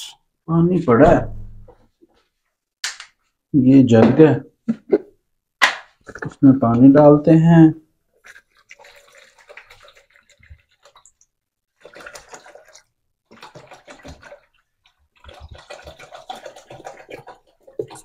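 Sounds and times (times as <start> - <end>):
water pouring into plastic jug: 8.2 - 18.0.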